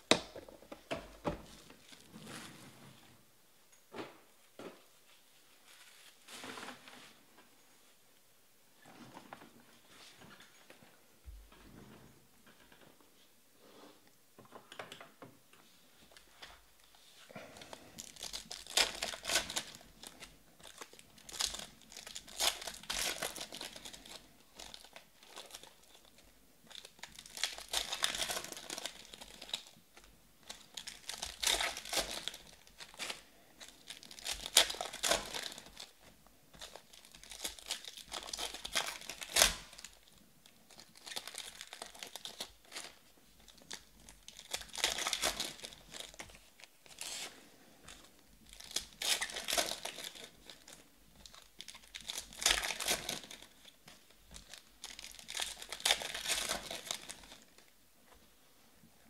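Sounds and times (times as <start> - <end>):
foil wrappers tearing and crinkling: 17.3 - 29.8, 30.4 - 36.0, 36.6 - 57.6.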